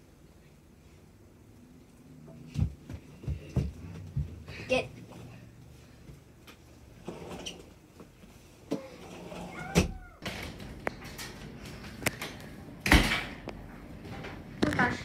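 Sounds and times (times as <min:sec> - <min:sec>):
door squeaky glide: 0:08.8 - 0:10.2.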